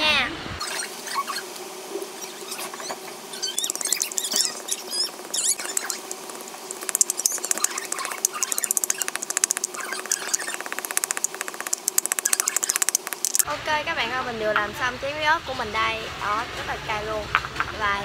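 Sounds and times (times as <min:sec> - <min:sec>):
pestle squeaking: 0:00.6 - 0:01.5, 0:02.2 - 0:13.5
pestle grinding in bowl: 0:02.8 - 0:13.5.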